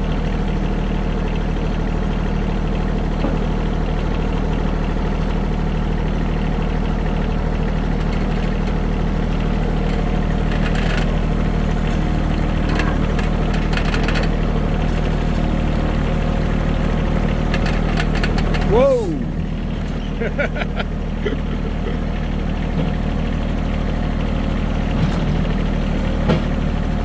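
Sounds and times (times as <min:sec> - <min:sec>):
tractor engine running: 0:00.0 - 0:27.0
light clicks and rattles: 0:12.6 - 0:15.5, 0:17.5 - 0:18.7.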